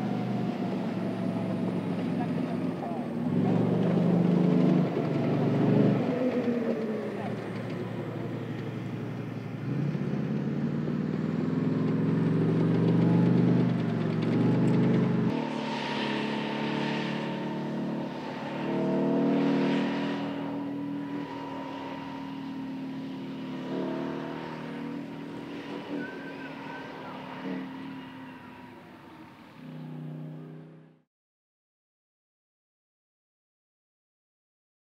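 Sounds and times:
tank engine: 0.0s - 31.0s
high whine: 12.2s - 30.5s.

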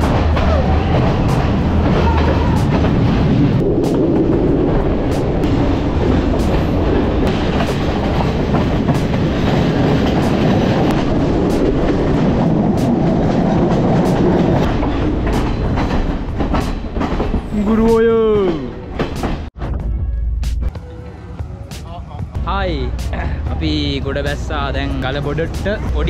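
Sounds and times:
train wheels rumbling on rail: 0.0s - 19.6s, 22.0s - 26.0s
wheels clacking over rail joints: 0.0s - 19.6s
wind: 0.0s - 26.0s.

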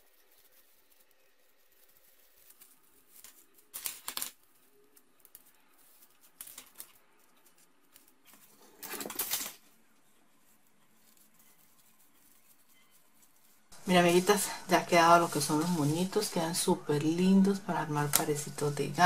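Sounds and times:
ribbon rustling: 0.0s - 19.0s.

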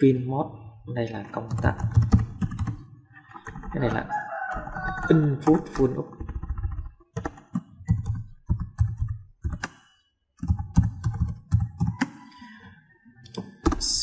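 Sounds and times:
typing on computer keyboard: 1.4s - 12.4s.

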